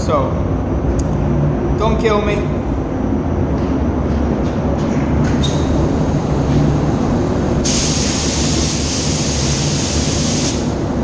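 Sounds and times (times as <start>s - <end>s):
ventilation drone: 0.0s - 11.0s
paint spray gun hissing: 7.6s - 10.8s.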